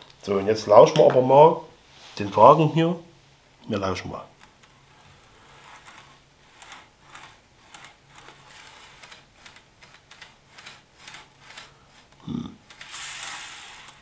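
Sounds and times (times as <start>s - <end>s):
model train wheels clacking: 4.4s - 14.0s.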